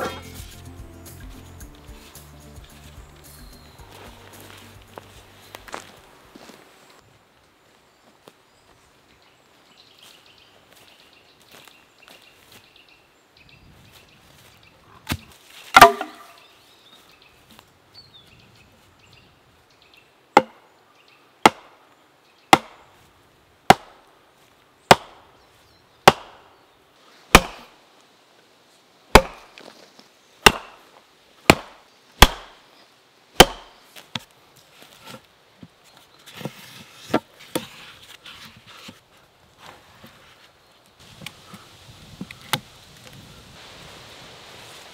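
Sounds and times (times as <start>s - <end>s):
axe knocking wooden stake: 15.1s - 16.3s, 20.4s - 20.6s, 21.4s - 21.7s, 22.5s - 22.8s, 23.7s - 24.0s, 24.9s - 25.2s, 26.0s - 26.4s, 27.3s - 27.7s, 29.1s - 29.5s, 30.4s - 30.8s, 31.5s - 32.6s, 33.4s - 34.2s.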